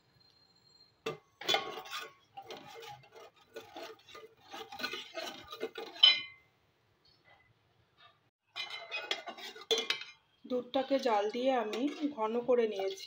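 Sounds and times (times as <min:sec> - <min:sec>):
spoon scraping and clinking in pan: 0:01.0 - 0:06.4, 0:08.5 - 0:13.0.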